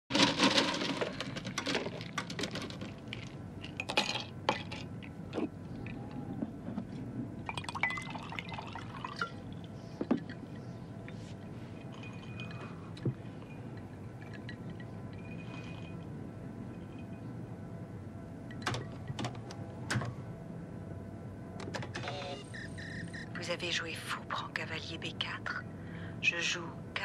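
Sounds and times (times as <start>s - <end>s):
whisky pouring into glass: 7.5s - 9.3s
glass clinking: 7.5s - 9.4s, 11.8s - 16.1s.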